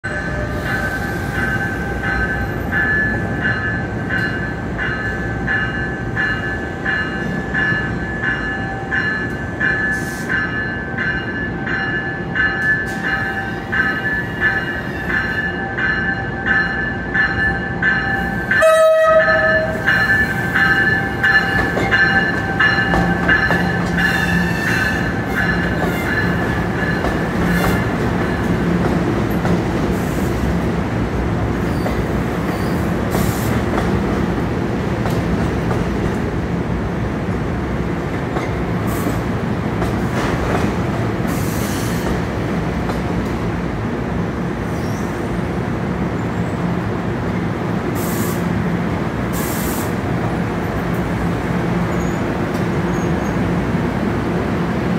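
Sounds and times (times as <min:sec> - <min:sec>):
train bell ringing: 0:00.0 - 0:28.7
train cars rumbling past: 0:00.0 - 0:54.9
train horn: 0:18.5 - 0:20.6, 0:24.0 - 0:26.3.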